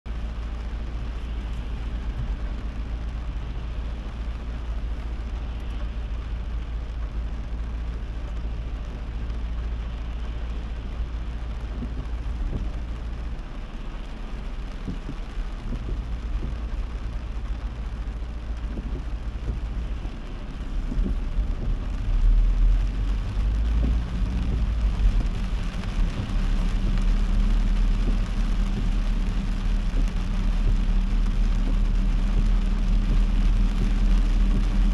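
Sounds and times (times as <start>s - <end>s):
car engine and road rumble: 0.0s - 34.9s
heavy rain hiss: 0.1s - 34.9s.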